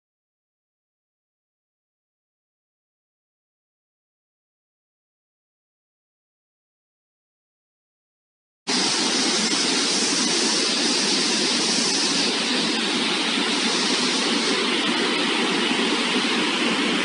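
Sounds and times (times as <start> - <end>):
water pouring from spillway: 8.7 - 17.0.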